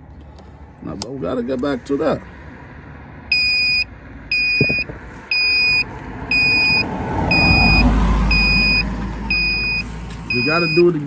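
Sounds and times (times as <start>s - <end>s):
high electronic beeps: 3.3s - 10.9s.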